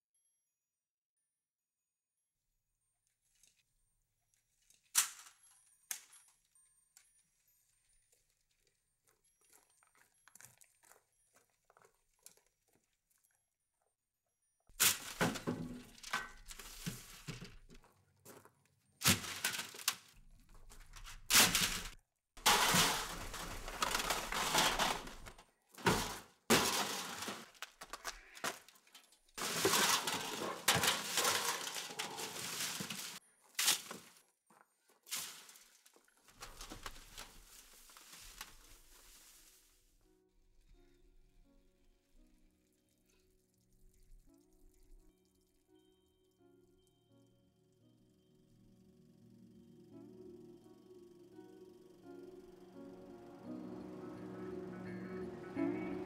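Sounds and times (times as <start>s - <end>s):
metal cans crashing into truck bed: 14.8s - 17.6s, 19.0s - 19.9s, 21.3s - 27.7s, 29.4s - 33.2s.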